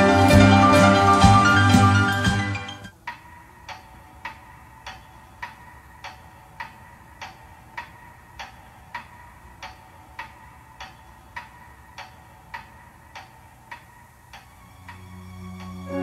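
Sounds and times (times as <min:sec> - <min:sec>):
steady ticking: 0:00.0 - 0:16.0
low sustained music tone: 0:13.4 - 0:16.0.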